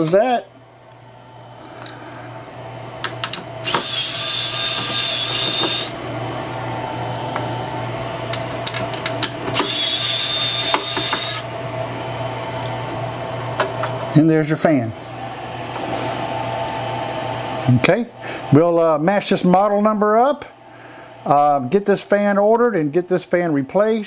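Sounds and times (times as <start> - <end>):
electric screwdriver whining: 3.1 - 6.0, 8.6 - 11.6.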